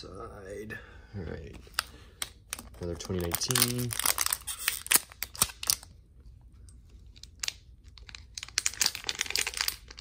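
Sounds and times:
foil wrapper crinkling: 2.5 - 5.9, 7.2 - 10.0.

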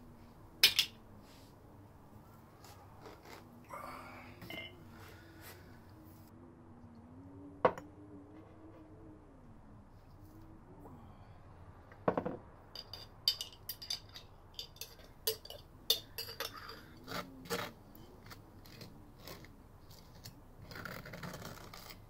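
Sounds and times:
knife clinking in glass jar: 12.8 - 17.2
knife scraping on toast: 16.2 - 22.0.

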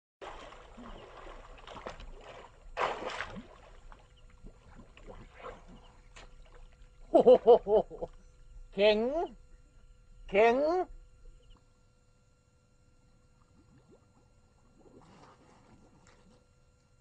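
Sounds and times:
water splashing and sloshing: 0.2 - 8.2, 13.3 - 16.8
person calling out: 8.8 - 9.4, 10.3 - 10.9.

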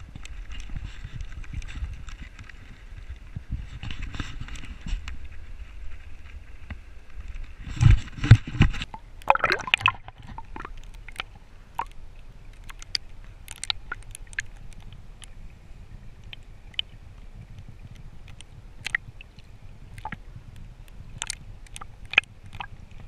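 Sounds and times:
small clicks underwater: 0.0 - 15.5, 16.2 - 23.0
muffled underwater rumble: 0.0 - 23.0
river water sloshing and gurgling: 0.0 - 23.0
splashy rush of water: 8.0 - 11.9.

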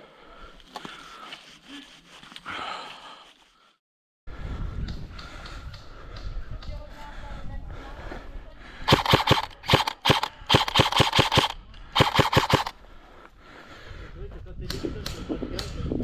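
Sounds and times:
airsoft rifle bursts: 8.9 - 12.7.

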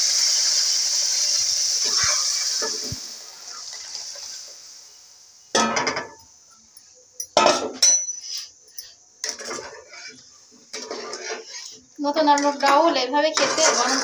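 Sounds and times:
oil hissing in a wok: 0.0 - 5.6, 8.1 - 14.0
metal spatula scraping a wok: 8.1 - 14.0.

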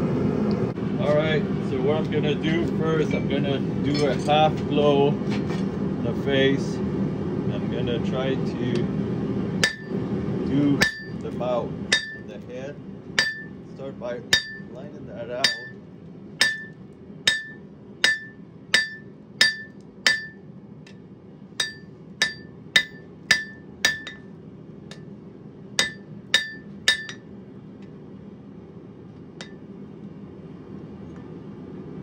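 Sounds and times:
hammer striking metal on anvil: 9.6 - 10.0, 10.8 - 11.2, 11.9 - 12.3, 13.2 - 13.6, 14.3 - 14.8, 15.4 - 15.8, 16.4 - 20.4, 21.6 - 24.3, 25.8 - 27.2, 29.4 - 29.6.

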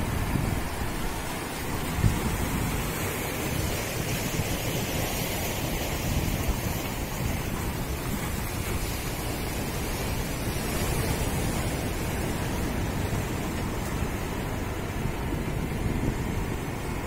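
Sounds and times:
sea surf on rocky shore: 0.0 - 17.0
wind gusting on microphone: 0.0 - 17.0.

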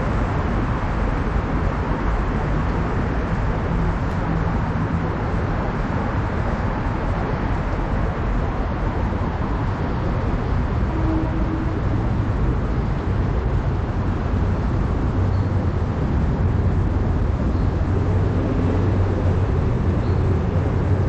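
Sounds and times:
low rumble and hiss: 0.0 - 21.0.

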